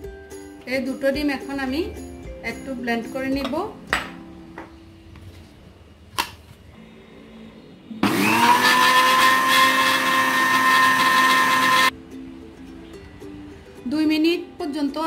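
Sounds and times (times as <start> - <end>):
blender motor beating eggs: 8.0 - 11.9.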